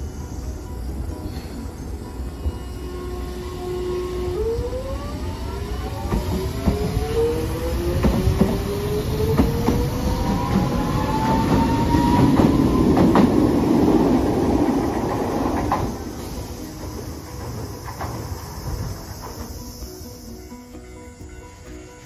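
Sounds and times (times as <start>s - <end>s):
tram motors whining: 0.0s - 22.0s
wheel clicks over rail joints: 5.8s - 20.3s.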